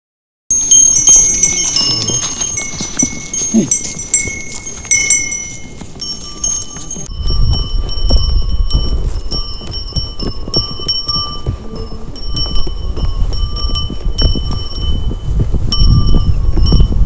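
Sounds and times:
horses walking: 0.5 - 17.0
small bells tinkling: 0.5 - 17.0
low rumble: 7.0 - 17.0.

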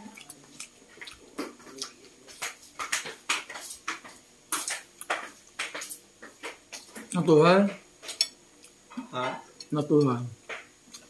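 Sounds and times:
chewing smacks and clicks: 0.1 - 7.2, 9.6 - 11.0.

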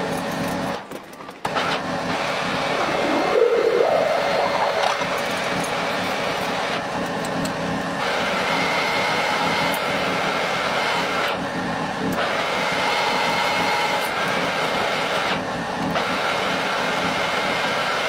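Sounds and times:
metal lathe running: 1.5 - 18.0
wavering cutting tone: 2.4 - 6.1.

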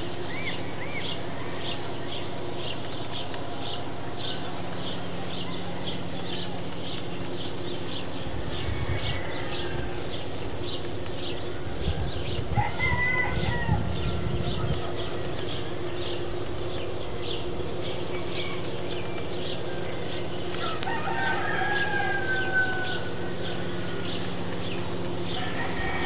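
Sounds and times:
small birds chirping: 0.0 - 26.0
roosters crowing: 0.1 - 2.7, 7.3 - 16.4, 17.4 - 26.0.

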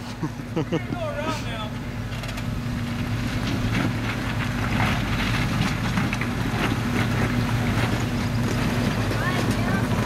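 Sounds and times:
engine running at low revs: 0.0 - 10.0
tyres crunching on stones: 2.1 - 10.0.

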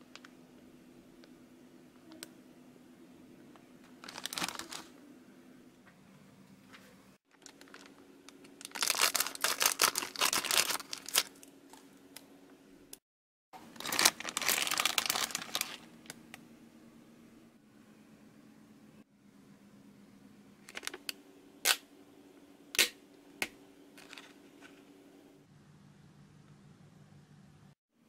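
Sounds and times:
faint steady hum: 0.0 - 13.0, 13.6 - 28.0
plastic film crinkling: 3.8 - 5.0, 7.3 - 11.9, 13.7 - 16.2
scissors cutting plastic packet: 7.4 - 11.5, 13.8 - 15.9.

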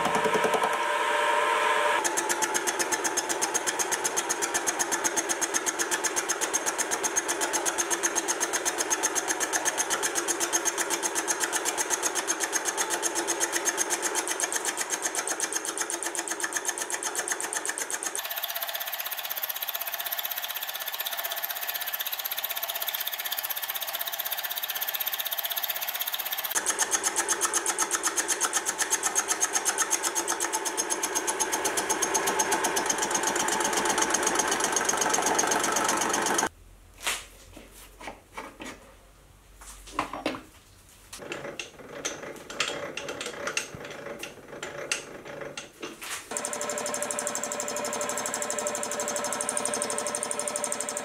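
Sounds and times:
milling machine running: 0.0 - 36.5, 46.3 - 51.0
fast ticking of cutter on steel: 2.0 - 36.5, 46.3 - 51.0.

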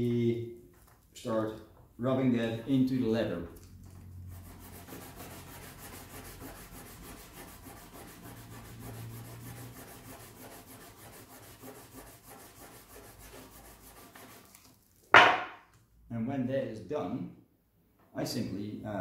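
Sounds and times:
compound rubbing on leather: 3.8 - 15.1.

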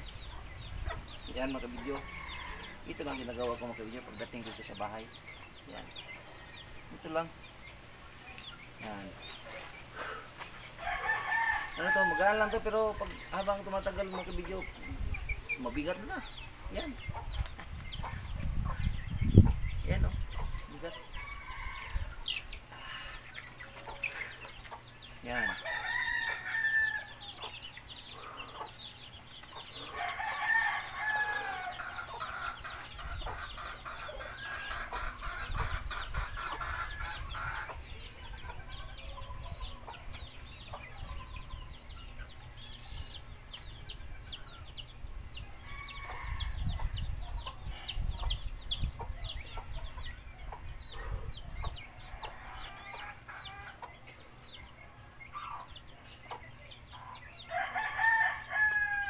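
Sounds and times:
chickens clucking: 0.0 - 59.0
rooster crowing: 10.8 - 12.6, 21.0 - 22.2, 25.4 - 27.4, 29.9 - 32.2, 45.6 - 46.7, 57.5 - 59.0.

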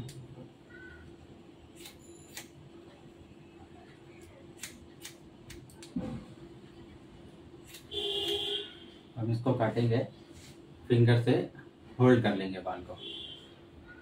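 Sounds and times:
faint steady hum: 0.0 - 14.0
scissors snipping hair: 1.8 - 2.5, 4.2 - 6.0, 7.7 - 8.4.

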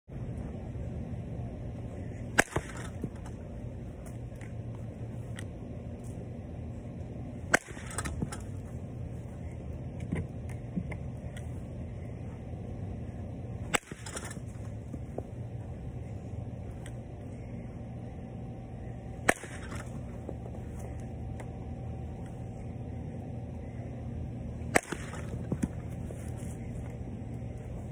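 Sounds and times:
steady low hum: 0.1 - 27.9
bat cracking against ball: 2.2 - 3.4, 7.4 - 8.6, 13.6 - 15.3, 19.2 - 21.5, 24.6 - 26.8.

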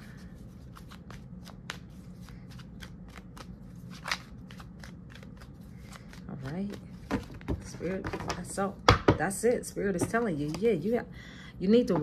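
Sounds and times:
cards being shuffled: 0.1 - 8.5.

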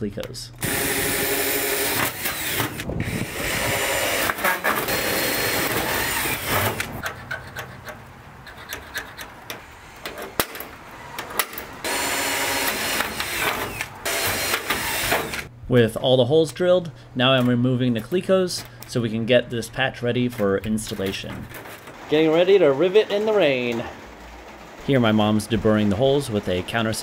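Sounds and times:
cordless drill boring metal: 0.6 - 7.0, 11.8 - 15.5
hand tools tapping on metal: 6.7 - 11.8.

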